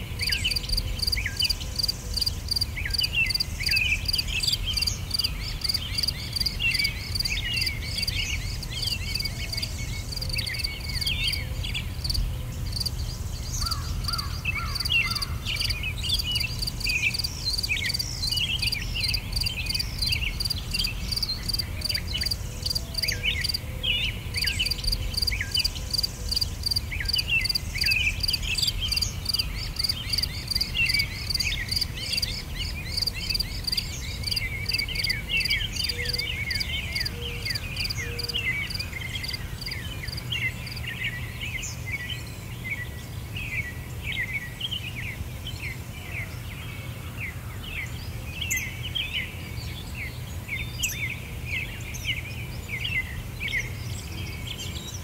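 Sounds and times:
pulsing insect chorus: 0:00.0 - 0:23.6, 0:24.4 - 0:38.0, 0:38.6 - 0:40.9.

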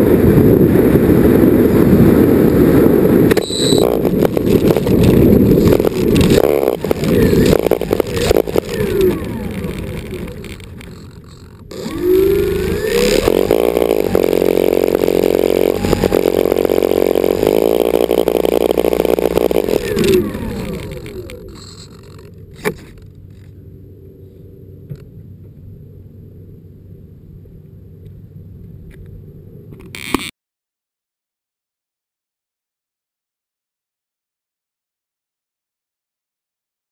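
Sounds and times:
faint low hum: 0:00.2 - 0:29.9
model plane propeller motors: 0:02.4 - 0:23.8.

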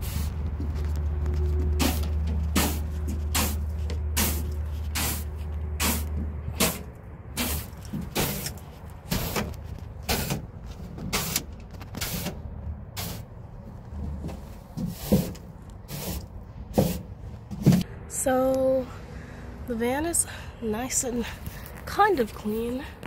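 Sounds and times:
broom sweeping metal floor: 0:00.0 - 0:00.8, 0:01.7 - 0:12.4, 0:13.0 - 0:13.3, 0:14.0 - 0:17.8
low steady rumble: 0:00.0 - 0:23.0.

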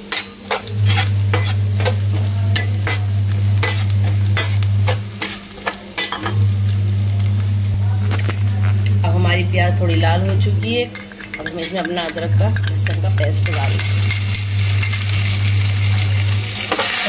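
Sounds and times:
metal spatula scraping a pan: 0:00.0 - 0:02.0
onion sizzling in oil: 0:00.0 - 0:11.3, 0:12.1 - 0:17.0
steady low hum: 0:00.4 - 0:16.8.

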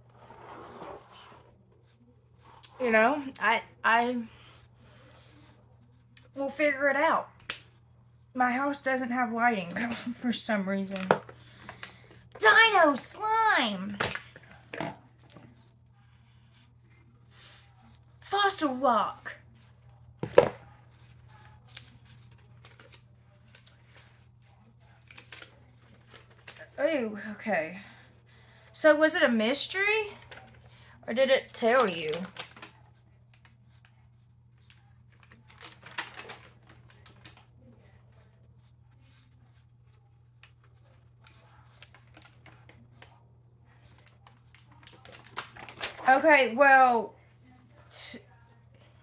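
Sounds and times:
packaging rustling: 0:35.1 - 0:37.4.

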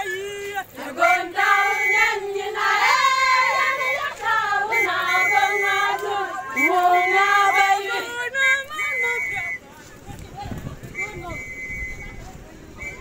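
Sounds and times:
women singing together: 0:00.5 - 0:09.6.

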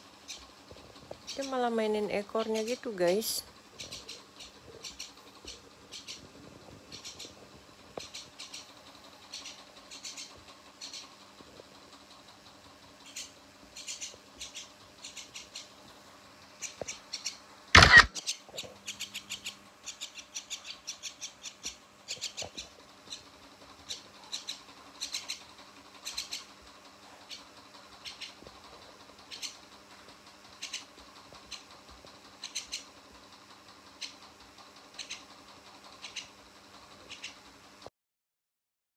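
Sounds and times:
bird squeaky chirps: 0:03.8 - 0:06.2, 0:06.9 - 0:07.4, 0:08.0 - 0:08.7, 0:09.3 - 0:11.1, 0:13.1 - 0:15.7, 0:16.6 - 0:23.3, 0:23.9 - 0:25.4, 0:26.0 - 0:26.5, 0:27.3 - 0:28.4, 0:30.6 - 0:30.9, 0:32.4 - 0:32.9.

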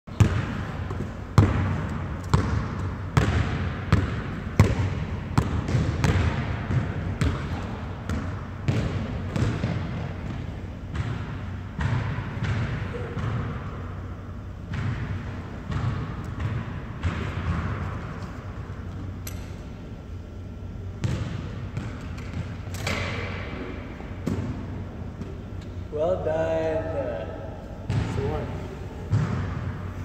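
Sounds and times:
basketball bouncing on wood floor: 0:00.1 - 0:13.6, 0:14.7 - 0:18.3, 0:21.0 - 0:23.4, 0:29.1 - 0:29.7.

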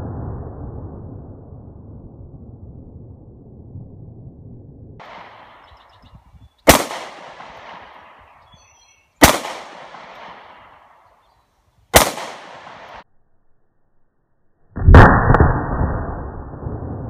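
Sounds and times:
handgun shots echoing: 0:06.7 - 0:08.2, 0:09.2 - 0:11.0, 0:12.0 - 0:13.0.

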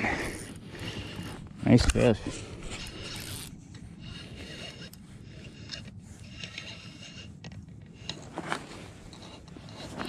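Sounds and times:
fishing reel gears whirring: 0:00.0 - 0:01.3, 0:02.0 - 0:08.2.

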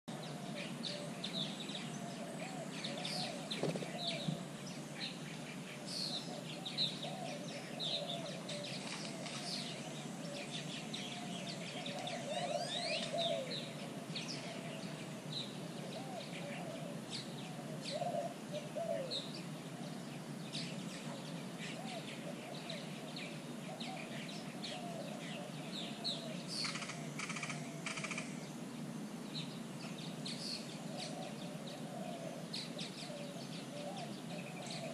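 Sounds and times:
lower wavering bird calls: 0:00.1 - 0:34.9
birds chirping and whistling: 0:00.2 - 0:19.3, 0:20.6 - 0:28.5.

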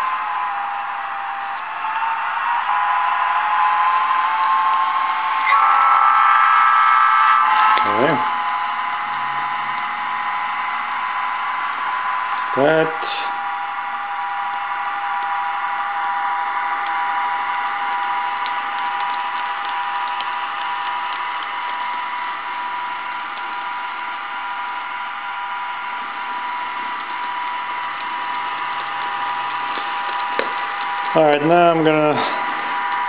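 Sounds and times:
model train motor whine: 0:00.0 - 0:33.0.

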